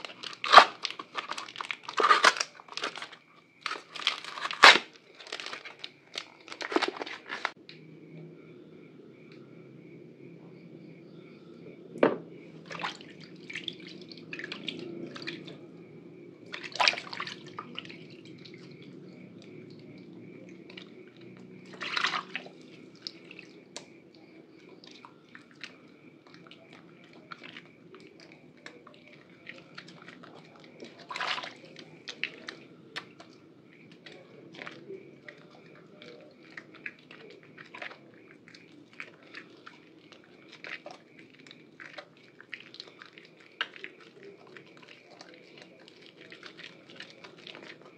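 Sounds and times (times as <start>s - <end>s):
water splashing: 0.0s - 7.6s, 12.0s - 47.9s
wet hands rubbing soap: 0.0s - 7.6s, 12.6s - 15.7s, 16.4s - 47.9s
water dripping: 12.0s - 47.9s.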